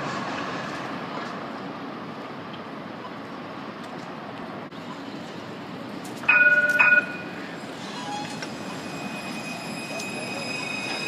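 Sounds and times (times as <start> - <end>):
street hum: 0.0 - 11.0
tram bell dings: 6.2 - 11.0.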